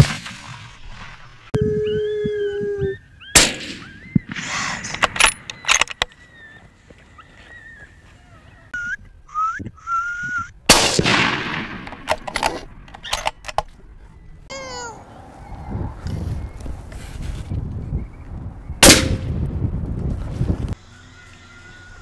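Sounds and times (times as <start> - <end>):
rifle shots with echo: 3.4 - 4.5, 10.7 - 12.2, 18.8 - 19.3
short rising whistles: 8.8 - 10.5.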